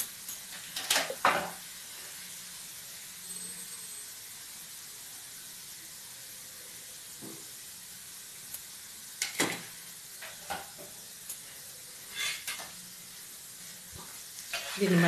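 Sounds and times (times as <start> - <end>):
oil crackling and popping: 0.0 - 2.1, 7.1 - 15.0
noodles sizzling in hot oil: 0.0 - 15.0.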